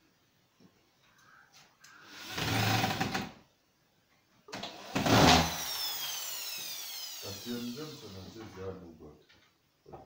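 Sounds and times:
cordless drill whine: 0:04.7 - 0:08.5.

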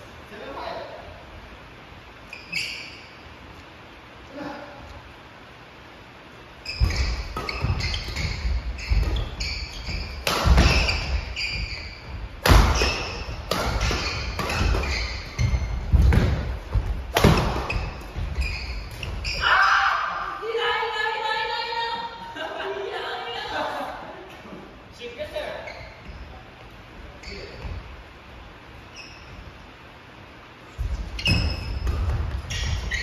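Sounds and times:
shoes squeaking on court: 0:02.2 - 0:03.4, 0:06.6 - 0:19.6, 0:25.6 - 0:28.0, 0:28.8 - 0:29.9, 0:30.6 - 0:33.0
rackets striking shuttlecock: 0:06.8 - 0:19.2
thudding footsteps: 0:06.8 - 0:19.4.

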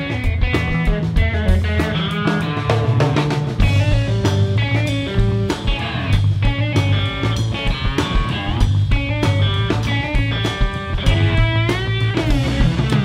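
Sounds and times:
bass guitar: 0:00.0 - 0:13.0
drum kit: 0:00.0 - 0:13.0
electric guitar lead with bent notes: 0:00.0 - 0:13.0.

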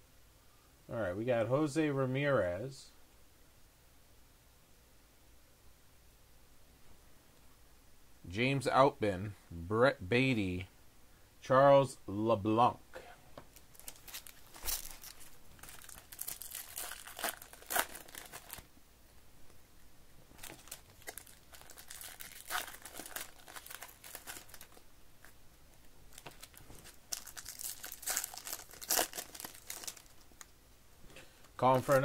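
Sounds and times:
foil wrapper crinkling and tearing: 0:13.5 - 0:18.7, 0:20.4 - 0:25.4, 0:26.1 - 0:30.5, 0:31.7 - 0:32.0.

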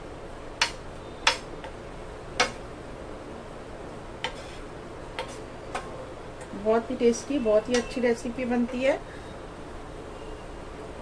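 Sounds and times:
spatula tapping against pan: 0:00.6 - 0:01.8, 0:02.4 - 0:02.6
wooden spatula stirring in pan: 0:04.2 - 0:05.4.

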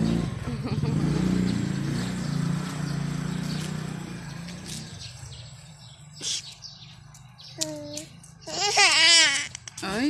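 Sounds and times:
passing vehicle engine droning: 0:00.0 - 0:06.2.

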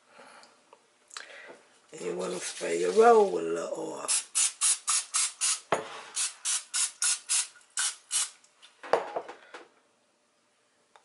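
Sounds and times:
aerosol spray hissing: 0:04.1 - 0:08.4.

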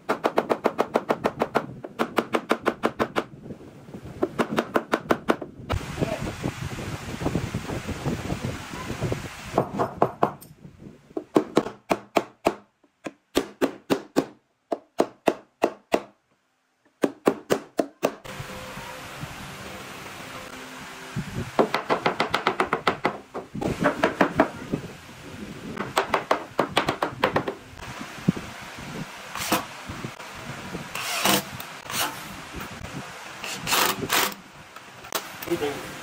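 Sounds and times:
hammer knocking on wood: 0:21.6 - 0:24.5, 0:25.8 - 0:27.6.

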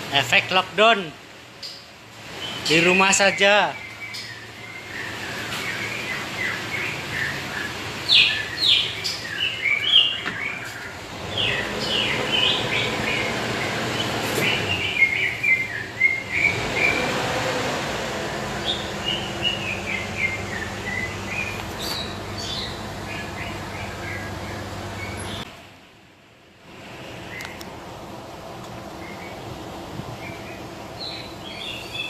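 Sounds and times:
small birds chirping: 0:00.1 - 0:17.4, 0:18.3 - 0:25.5, 0:27.2 - 0:27.7, 0:28.6 - 0:32.0
car engine idling: 0:03.8 - 0:25.8.

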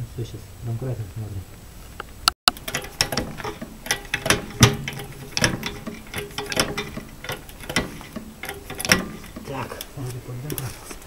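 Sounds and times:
floor jack metal clicks and clanks: 0:02.5 - 0:11.0.

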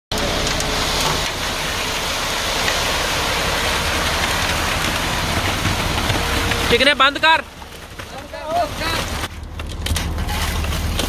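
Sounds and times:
concrete rushing down chute: 0:00.1 - 0:11.0
mixer truck running: 0:00.1 - 0:11.0.

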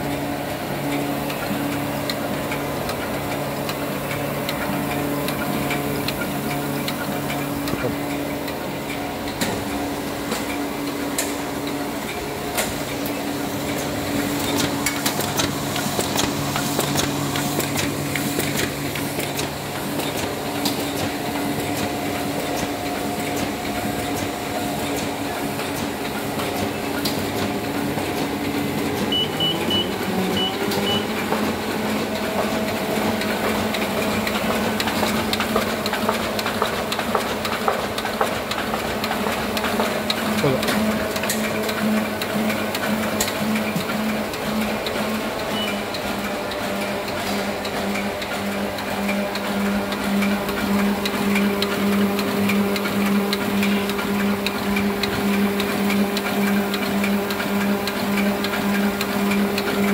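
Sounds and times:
printing press running: 0:00.0 - 0:59.9
fast mechanical clicking: 0:12.5 - 0:29.5, 0:30.7 - 0:59.9
short high beeps: 0:29.1 - 0:31.0.

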